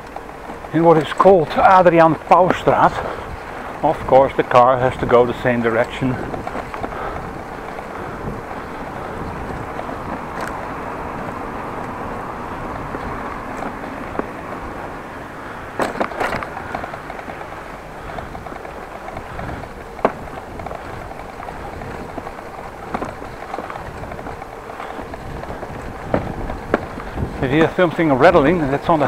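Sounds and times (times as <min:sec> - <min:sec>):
bicycle tyres on brick pavers: 0:00.0 - 0:29.0
light rattle of tool: 0:15.8 - 0:22.3.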